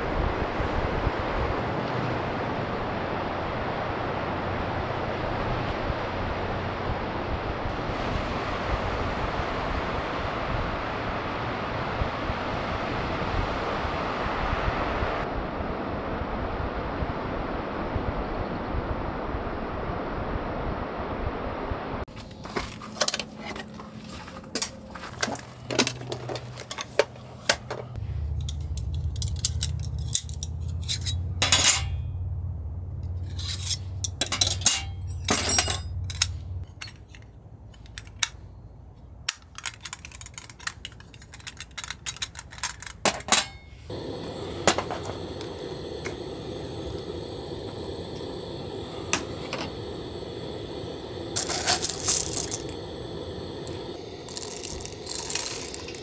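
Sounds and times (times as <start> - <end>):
steady background hiss: 43.2 - 56.0.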